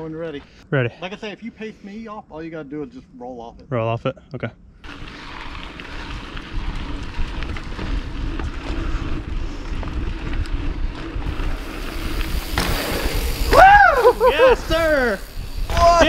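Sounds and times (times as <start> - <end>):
bike clicks and rattles: 4.8 - 16.0
tyres rolling on dirt trail: 4.8 - 16.0
wind buffeting microphone: 4.9 - 16.0.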